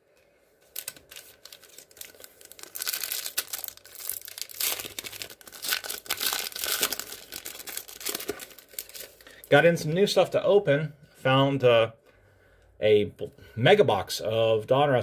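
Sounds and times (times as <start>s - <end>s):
foil wrapper tearing and crinkling: 0.7s - 9.3s.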